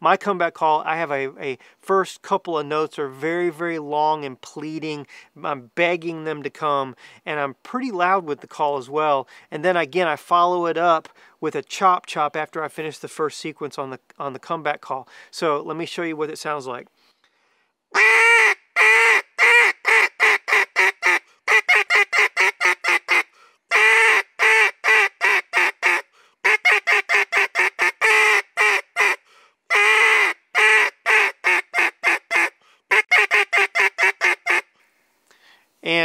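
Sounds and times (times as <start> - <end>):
duck call quacking: 17.9 - 34.7.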